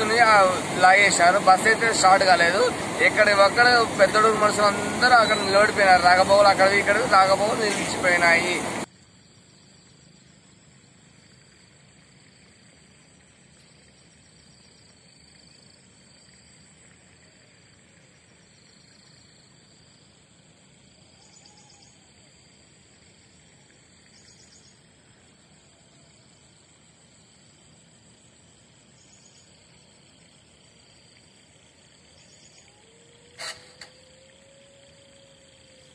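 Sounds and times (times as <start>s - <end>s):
high insect chirring: 18.0s - 35.9s.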